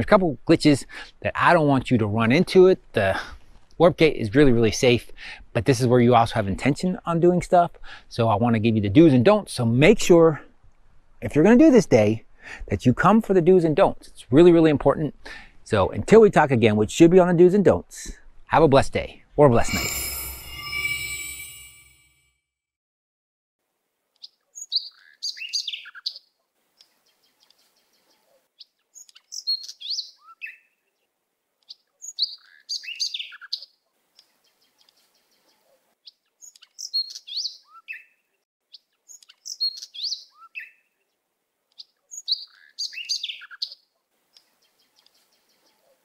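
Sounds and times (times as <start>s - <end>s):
songbird chirping: 24.1s - 46.0s.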